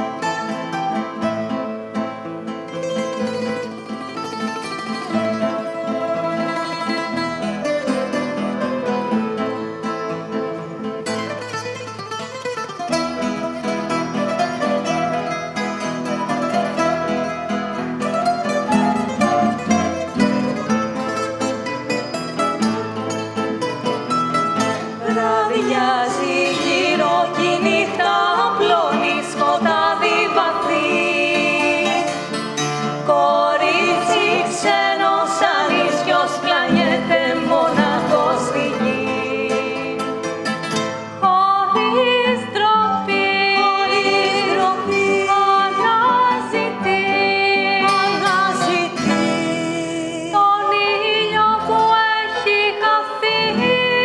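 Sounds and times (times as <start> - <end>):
plucked strings: 0.0 - 54.0
violin: 0.0 - 54.0
woman singing: 5.1 - 8.2, 25.0 - 32.4, 33.0 - 40.3, 41.2 - 54.0.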